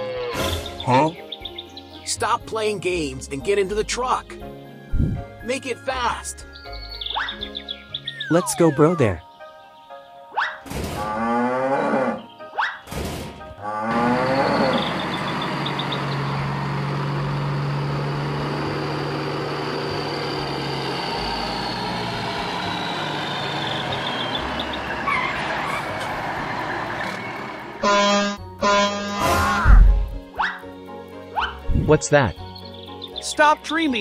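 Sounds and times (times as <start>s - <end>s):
background music: 0.0s - 16.1s, 23.4s - 34.0s
cartoon truck engine humming: 3.0s - 9.3s, 13.6s - 33.3s
short pitched calls: 6.6s - 9.3s.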